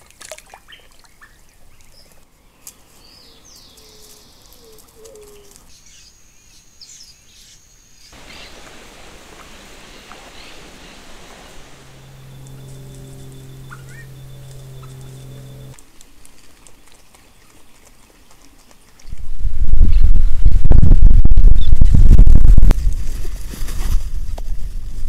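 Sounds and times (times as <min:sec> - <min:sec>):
even hiss: 0:08.1 - 0:15.8
bird chirps and calls: 0:09.9 - 0:15.7.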